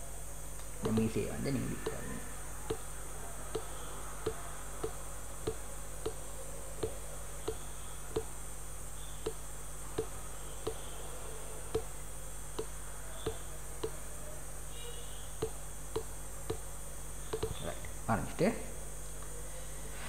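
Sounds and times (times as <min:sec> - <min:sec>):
low hum and hiss: 0:00.0 - 0:20.0
computer mouse clicking: 0:00.6 - 0:01.2, 0:03.5 - 0:06.2.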